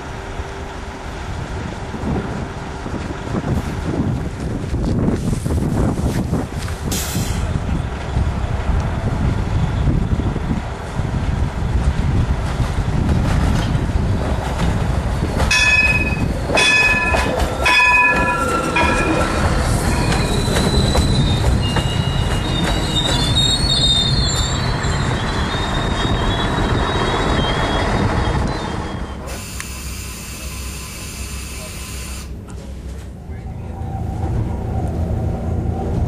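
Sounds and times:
train wheels rumbling on track: 0:00.0 - 0:36.0
wheel squeal: 0:15.7 - 0:29.6.

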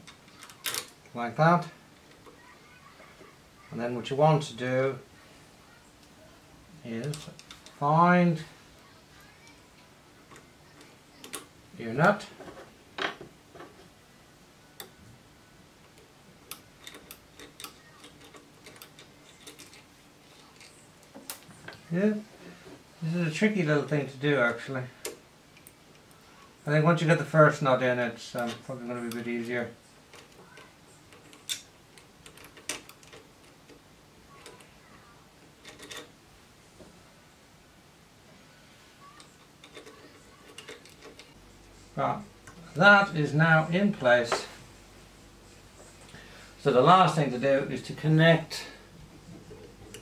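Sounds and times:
small metal parts clicking: 0:00.0 - 0:01.1, 0:16.4 - 0:21.5, 0:30.1 - 0:33.8, 0:35.5 - 0:36.1, 0:39.1 - 0:41.4.

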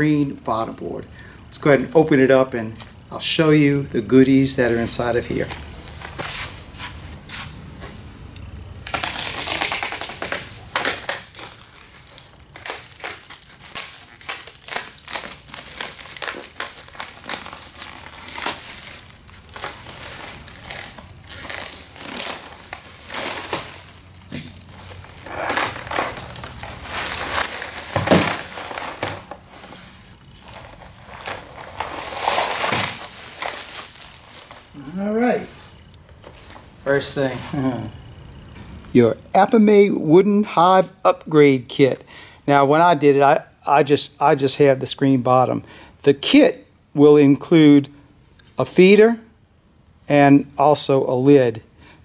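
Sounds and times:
plastic wrap crinkling: 0:08.8 - 0:36.8.

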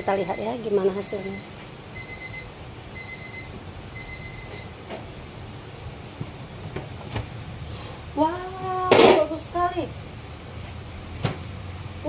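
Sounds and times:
timer alarm beeps: 0:00.0 - 0:04.8
low steady rumble: 0:00.0 - 0:12.0.

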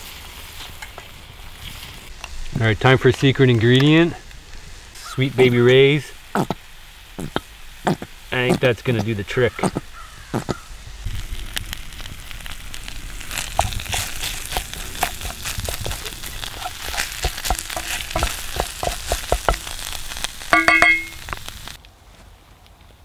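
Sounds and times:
meat sizzling in a skillet: 0:00.0 - 0:21.8
wooden spatula scraping a pan: 0:13.3 - 0:20.2.

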